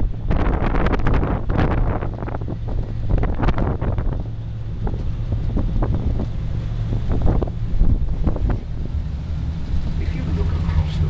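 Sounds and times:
boat engine drone: 0.0s - 11.0s
wind buffeting microphone: 0.0s - 11.0s.

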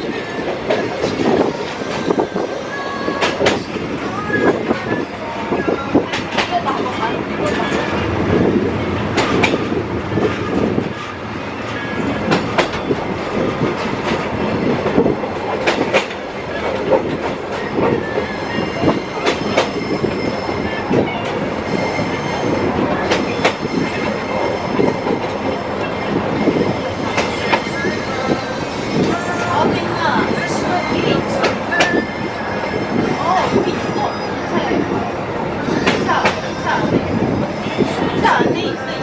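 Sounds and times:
train wheels rumbling on rail: 0.0s - 39.0s
high wheel squeal: 17.5s - 38.7s.

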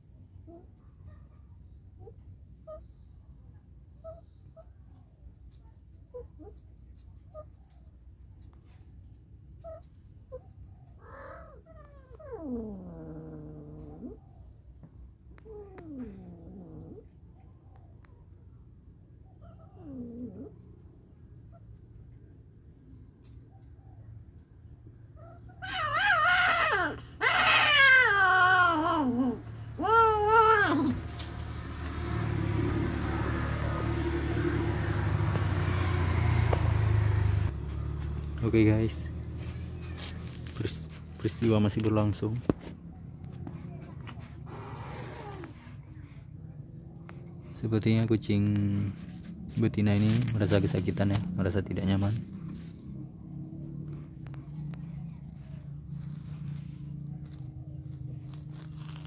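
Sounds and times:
cats crying and yowling: 9.6s - 14.4s, 15.4s - 17.4s, 19.3s - 20.7s, 25.1s - 31.6s.

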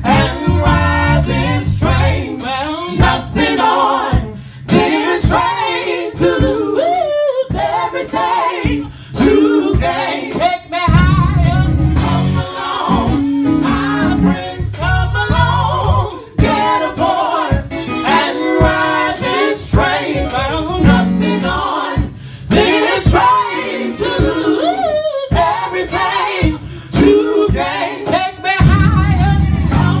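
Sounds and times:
sharp steady beat: 0.0s - 30.0s
woman singing into microphone: 8.7s - 11.7s, 24.1s - 25.6s, 26.4s - 30.0s.

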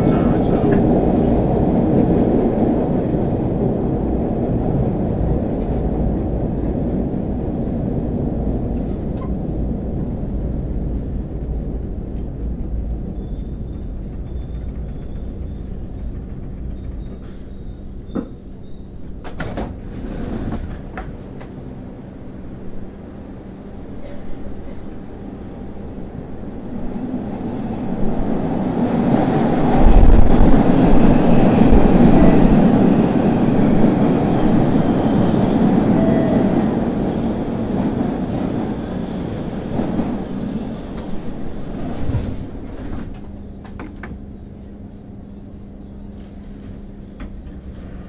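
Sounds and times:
subway train wheels rumbling on rail: 0.0s - 48.0s.

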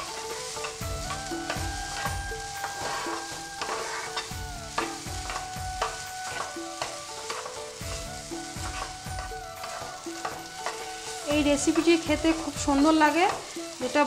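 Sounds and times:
food sizzling in a frying pan: 0.0s - 14.0s
spatula scraping a pan: 0.0s - 14.0s.

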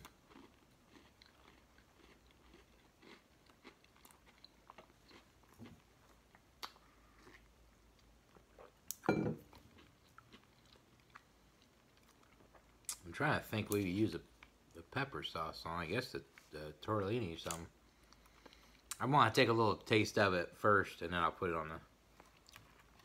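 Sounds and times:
person chewing crunchy crackers: 0.0s - 13.1s, 22.1s - 23.0s.

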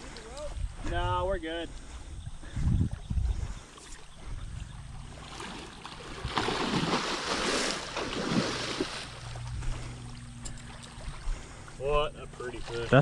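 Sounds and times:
fish splashing in shallow water: 3.0s - 13.0s.

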